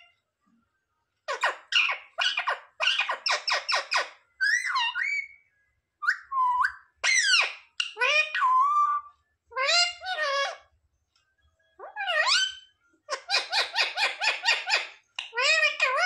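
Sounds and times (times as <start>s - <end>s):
parakeet calling: 1.3s - 5.4s, 6.0s - 10.7s, 11.8s - 16.0s.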